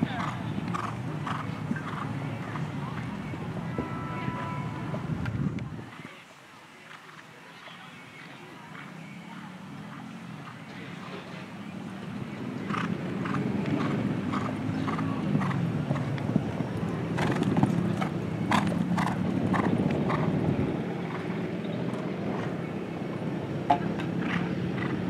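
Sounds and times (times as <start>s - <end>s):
horse hoofbeats on sand: 0.0s - 6.1s, 12.6s - 22.6s.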